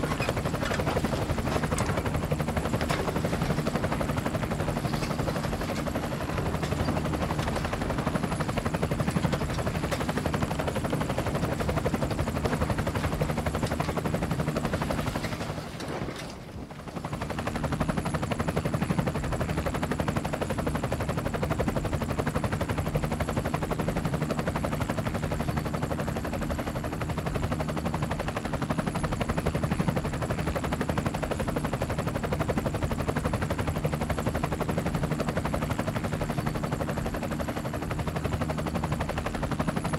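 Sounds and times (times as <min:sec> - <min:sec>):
drone propellers buzzing: 0:00.0 - 0:14.8.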